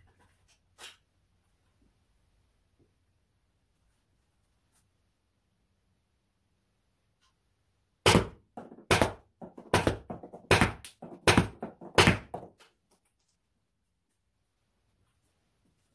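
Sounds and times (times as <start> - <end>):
projectiles striking cardboard box: 8.0 - 12.6.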